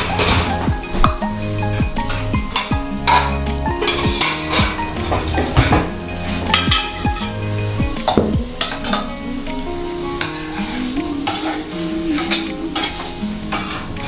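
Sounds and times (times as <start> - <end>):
sizzling hiss: 0.0 - 14.0
metal spoon scraping pot: 10.2 - 14.0.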